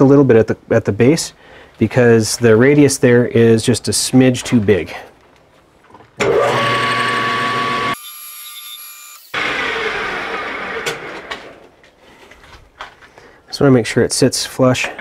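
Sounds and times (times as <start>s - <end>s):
metal lathe whining: 6.2s - 8.0s.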